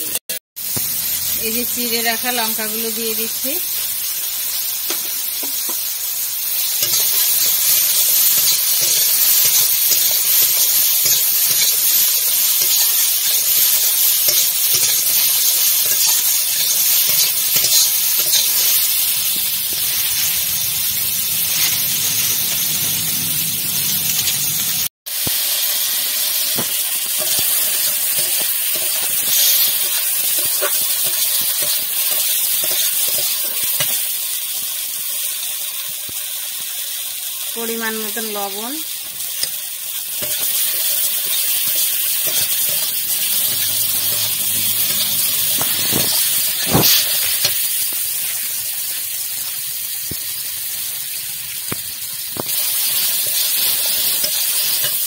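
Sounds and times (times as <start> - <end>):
vegetables sizzling in hot oil: 0.0 - 55.0
metal spatula stirring: 6.8 - 20.6, 27.1 - 34.0, 40.2 - 47.6, 53.0 - 55.0.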